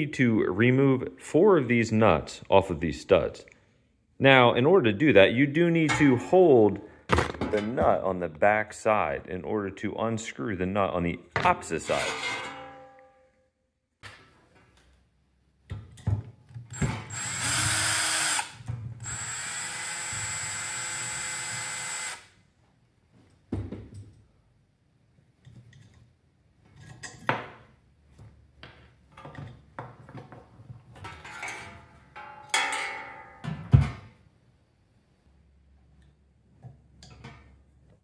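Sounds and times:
power drill running: 16.7s - 22.3s.

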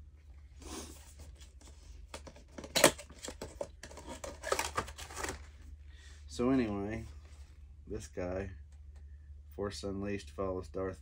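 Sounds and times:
packaging rustling and scraping: 0.5s - 5.7s.

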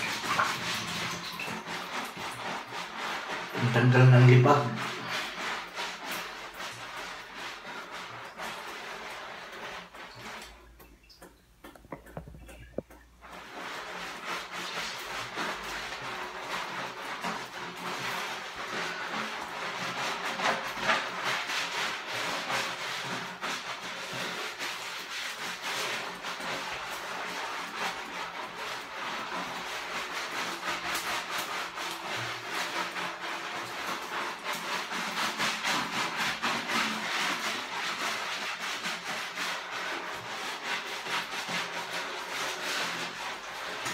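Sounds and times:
sponge scrubbing wet skin: 0.0s - 43.9s
soft knocks: 11.6s - 13.1s.

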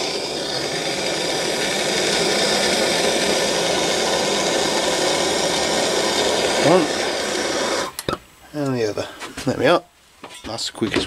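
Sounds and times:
blowtorch flame burning: 0.0s - 8.2s.

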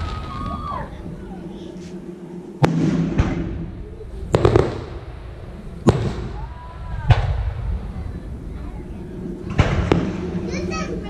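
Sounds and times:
low rumble: 0.0s - 11.0s
firework shell booms: 2.6s - 8.2s, 9.4s - 10.5s.

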